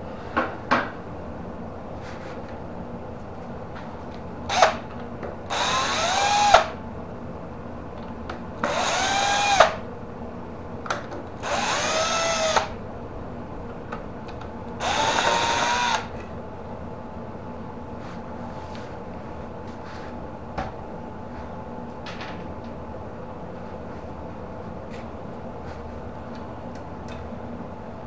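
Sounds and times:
cordless drill driving screws: 0:05.5 - 0:06.7, 0:08.6 - 0:09.8, 0:11.4 - 0:12.7, 0:14.8 - 0:16.1.

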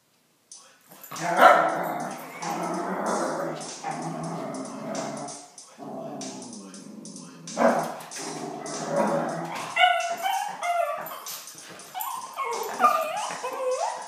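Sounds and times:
song playing: 0:00.9 - 0:14.0
small dog whining and yipping: 0:09.6 - 0:11.3, 0:11.9 - 0:14.0.

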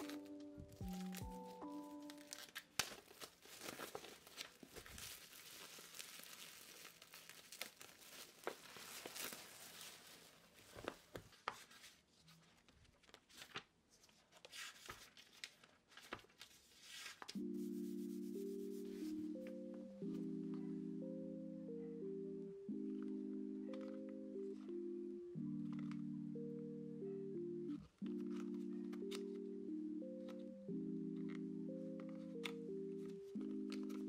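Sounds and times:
plastic wrapping tearing and crinkling: 0:00.0 - 0:11.2.

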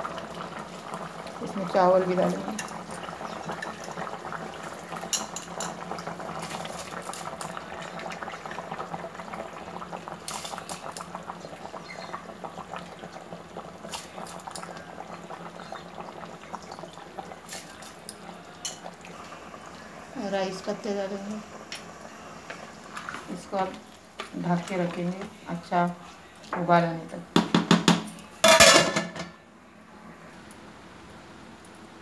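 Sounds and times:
stock boiling in metal pot: 0:00.0 - 0:29.4
rice clicking and clattering: 0:02.2 - 0:15.9, 0:16.6 - 0:19.2, 0:27.4 - 0:29.3.

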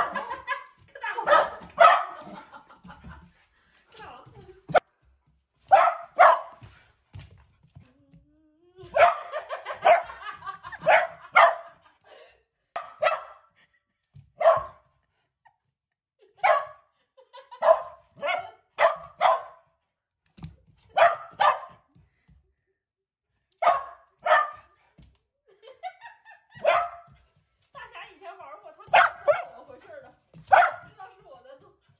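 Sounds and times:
dog barking: 0:01.2 - 0:02.4, 0:05.7 - 0:06.6, 0:08.9 - 0:11.8, 0:12.8 - 0:13.5, 0:14.4 - 0:14.8, 0:16.4 - 0:16.8, 0:17.5 - 0:19.7, 0:20.9 - 0:21.8, 0:23.6 - 0:24.8, 0:26.6 - 0:27.2, 0:28.9 - 0:29.6, 0:30.5 - 0:30.9.

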